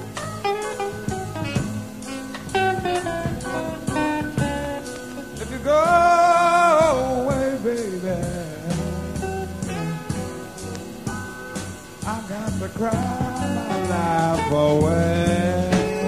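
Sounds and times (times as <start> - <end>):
drums on steady beat: 0.0 - 16.0
rock guitar: 0.0 - 16.0
person singing: 5.2 - 9.2, 12.0 - 16.0.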